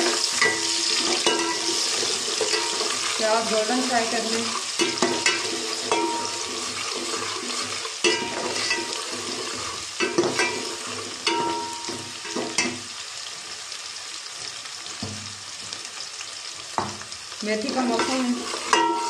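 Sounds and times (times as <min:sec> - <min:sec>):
ladle scraping and clinking on pot: 0:00.0 - 0:03.2, 0:04.5 - 0:12.8, 0:18.0 - 0:19.0
onions sizzling in hot oil: 0:00.0 - 0:19.0.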